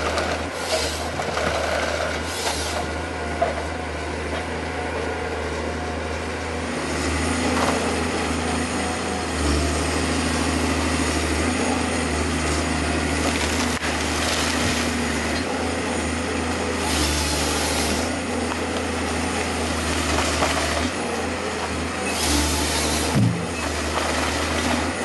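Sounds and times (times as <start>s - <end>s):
diesel engine under hydraulic load: 0.0s - 25.0s
chainsaw cutting trunk: 13.1s - 15.5s, 16.8s - 25.0s.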